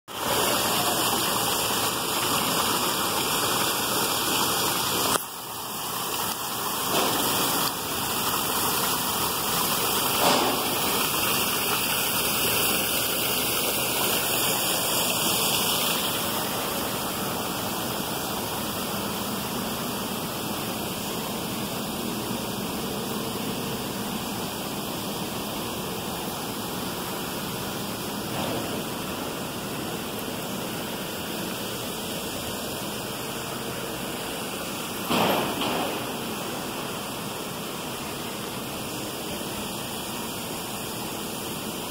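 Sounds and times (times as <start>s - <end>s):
water pouring over rock into pool: 0.1s - 41.9s.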